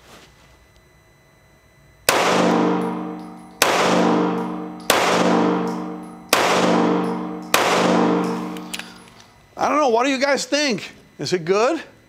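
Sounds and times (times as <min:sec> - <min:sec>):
pistol shots with ringing echo: 0:02.1 - 0:09.1.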